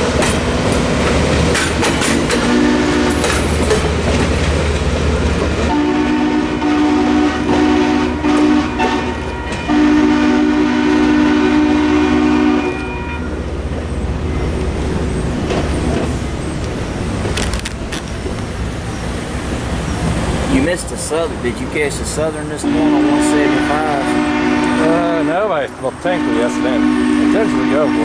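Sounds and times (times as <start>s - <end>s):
road traffic noise: 0.0s - 28.0s
train horn blasts: 2.4s - 3.5s, 5.7s - 13.4s, 22.6s - 28.0s.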